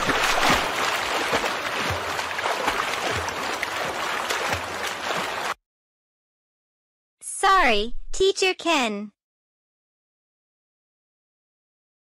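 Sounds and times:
water sloshing and splashing: 0.0 - 5.6.

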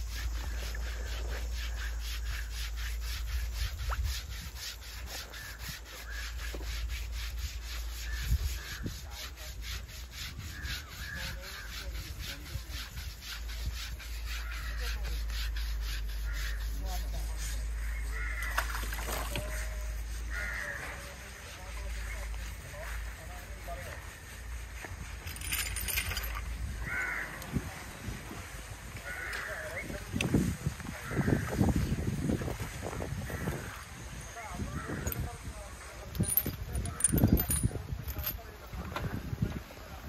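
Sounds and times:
scrubbing wet hide: 0.0 - 25.6.

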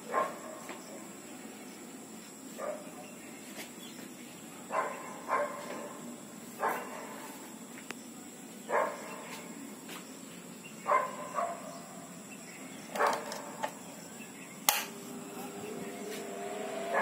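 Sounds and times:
dog barking: 0.0 - 0.7, 2.6 - 3.0, 4.7 - 6.0, 6.6 - 7.4, 8.7 - 9.2, 10.8 - 11.8
fan motor humming and whining: 14.4 - 17.0.

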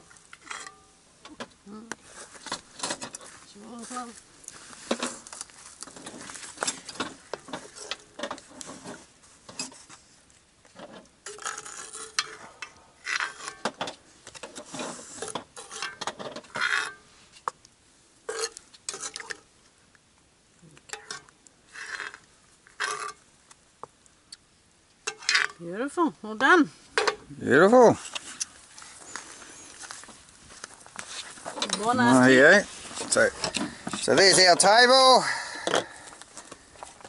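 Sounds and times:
tongs scraping and clinking on pot: 0.1 - 1.0, 2.0 - 9.9, 11.2 - 13.8, 14.4 - 17.5, 18.3 - 19.5, 20.8 - 23.2, 25.0 - 25.7, 31.0 - 35.1.

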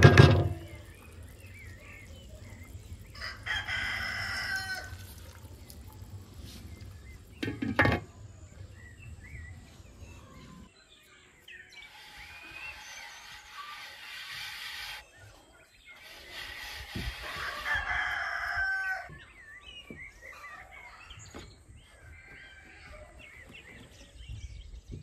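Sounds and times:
small birds chirping: 0.5 - 25.0
rooster crowing: 3.2 - 5.0, 17.2 - 19.1.

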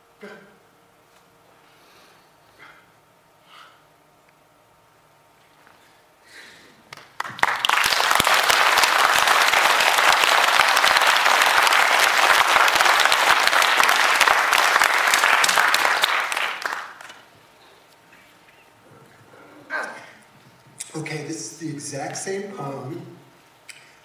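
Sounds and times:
audience applauding: 6.8 - 17.3.

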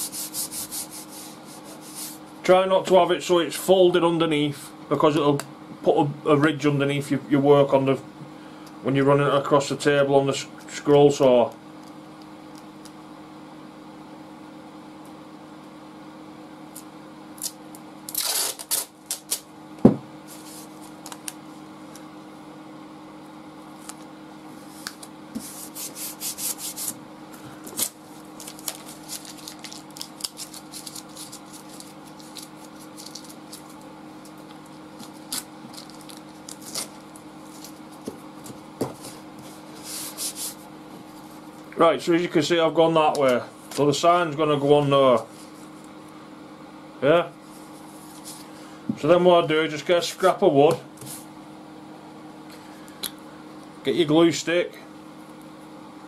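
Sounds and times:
hands rubbing tape flat: 0.0 - 2.3, 24.6 - 27.0, 27.7 - 41.4
steady low hum: 0.0 - 56.0
masking tape peeling off roll: 17.4 - 19.5, 27.7 - 34.4, 35.0 - 37.8
light knocks on wood: 19.8 - 20.1.

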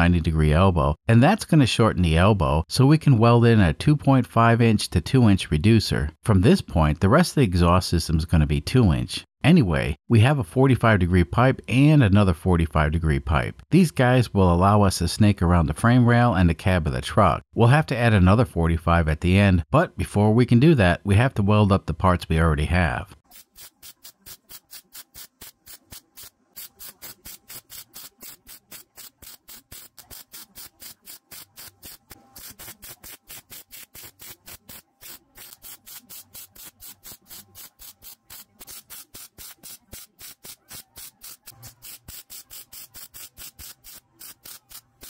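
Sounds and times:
welder arc crackling: 23.3 - 45.0.

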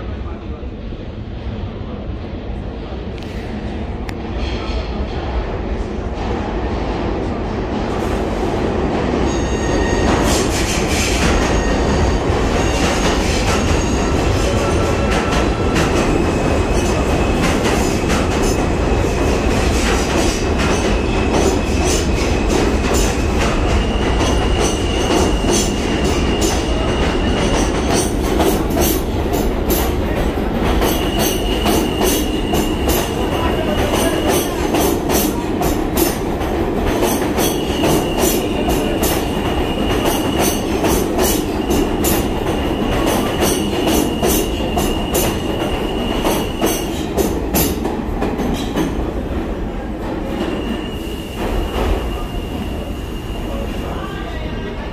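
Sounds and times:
subway train rumbling: 0.0 - 54.9
high wheel squeal: 9.2 - 14.6, 30.9 - 33.2.

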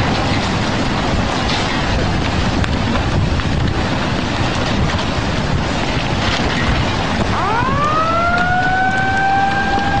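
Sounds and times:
floodwater rushing: 0.0 - 10.0
wind on microphone: 0.0 - 10.0
siren winding up: 7.3 - 10.0.

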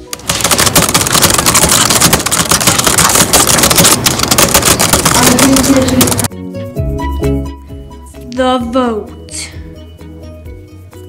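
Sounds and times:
dense crackling hiss: 0.0 - 6.3.

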